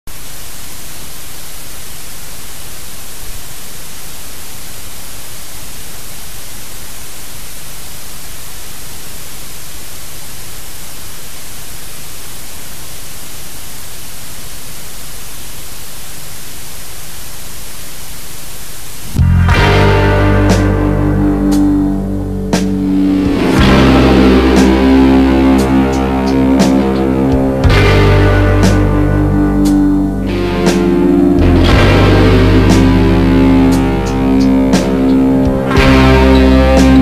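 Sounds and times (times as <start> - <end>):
static hiss: 0.1 - 37.0
low hum: 19.1 - 37.0.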